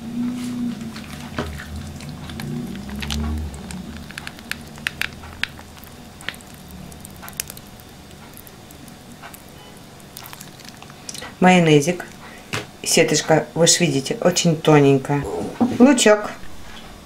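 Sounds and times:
low hum: 0:00.0 - 0:12.5, 0:15.1 - 0:17.0
salad squishing in plastic bowl: 0:00.8 - 0:12.5.

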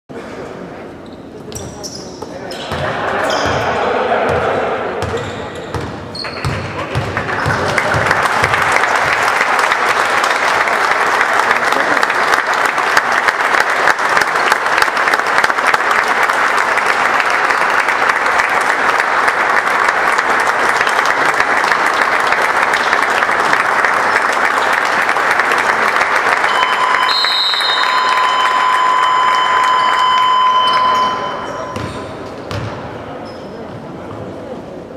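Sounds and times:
crowd applauding: 0:06.3 - 0:31.7
steady electronic beep: 0:26.5 - 0:32.1.

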